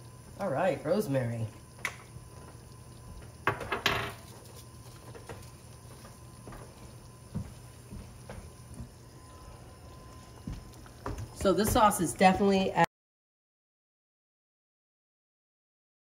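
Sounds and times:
sauce simmering with bubble pops: 0:00.0 - 0:12.2
low steady hum: 0:00.0 - 0:12.9.

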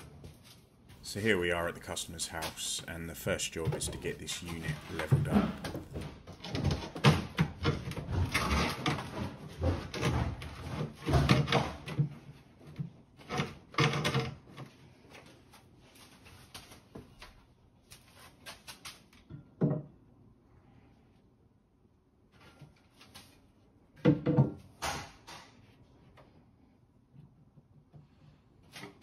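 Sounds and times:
wooden cupboard knocks and scrapes: 0:03.6 - 0:14.3.

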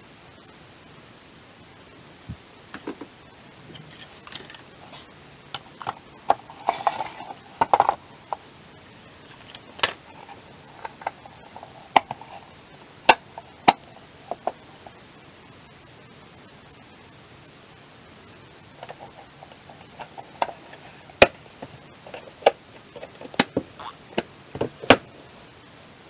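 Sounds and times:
plastic clicks and knocks: 0:21.2 - 0:25.1.

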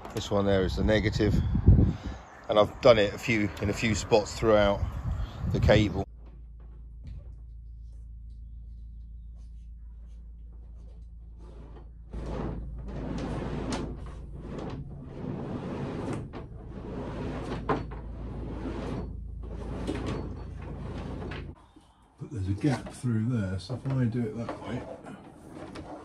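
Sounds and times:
low hum: 0:00.0 - 0:22.3
cables scraping and rubbing: 0:07.0 - 0:21.6, 0:22.5 - 0:26.0.

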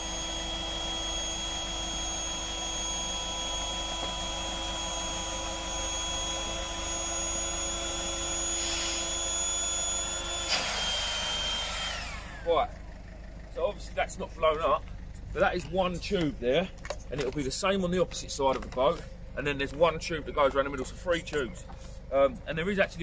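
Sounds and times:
electric air pump whining: 0:00.0 - 0:12.7.

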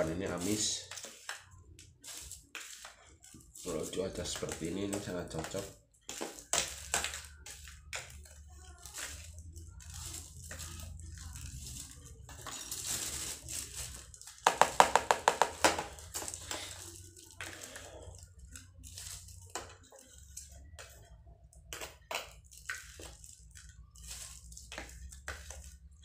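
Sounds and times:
plastic bag rustling: 0:00.0 - 0:21.2, 0:22.4 - 0:26.0.

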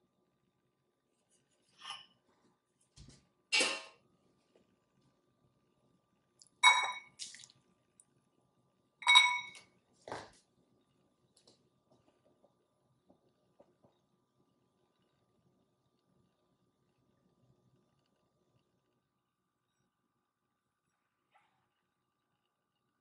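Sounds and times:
glass bowl ringing: 0:06.6 - 0:07.2, 0:09.0 - 0:09.6
kitchenware clinks and knocks: 0:09.0 - 0:09.7.

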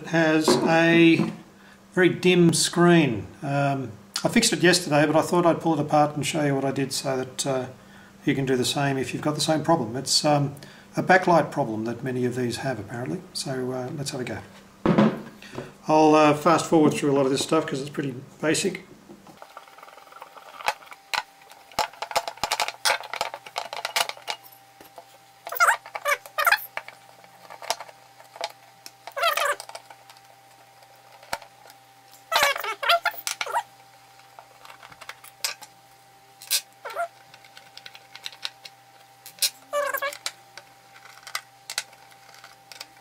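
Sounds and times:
loud warbling squeaks: 0:25.5 - 0:26.7, 0:29.2 - 0:29.6, 0:32.3 - 0:33.7, 0:36.4 - 0:37.1, 0:39.5 - 0:40.2.

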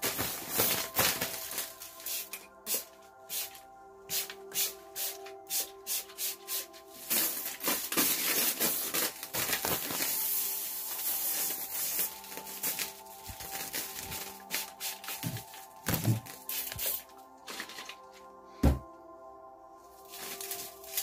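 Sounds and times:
soft ambient music: 0:00.0 - 0:21.0
dried palm fronds rustling: 0:07.0 - 0:18.0, 0:20.0 - 0:21.0.

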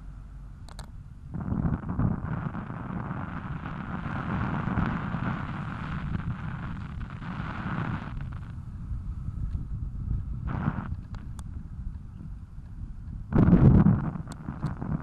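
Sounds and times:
wind buffeting microphone: 0:01.3 - 0:15.0.

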